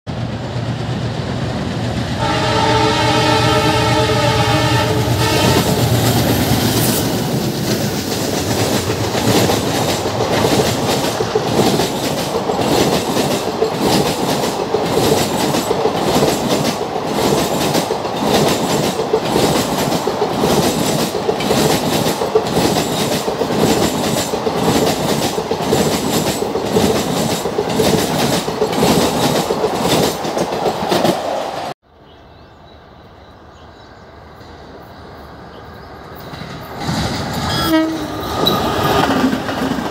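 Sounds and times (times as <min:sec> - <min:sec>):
train rumble: 0:00.1 - 0:31.8, 0:35.1 - 0:39.9
train wheels clicking: 0:05.2 - 0:31.8, 0:36.2 - 0:39.9.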